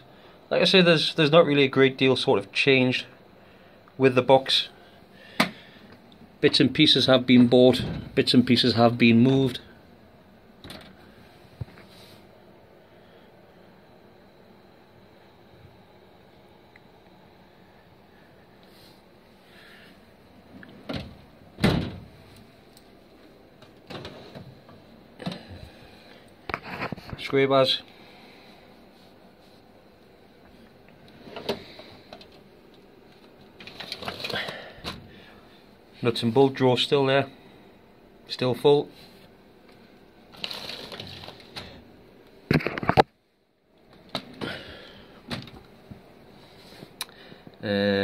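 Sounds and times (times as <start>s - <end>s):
drawer shutting with click and thump: 20.8s - 22.1s.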